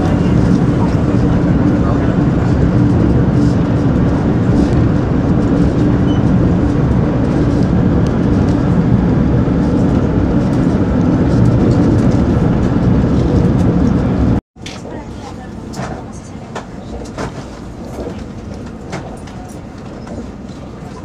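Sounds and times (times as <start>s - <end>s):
train interior rumble: 0.0s - 21.0s.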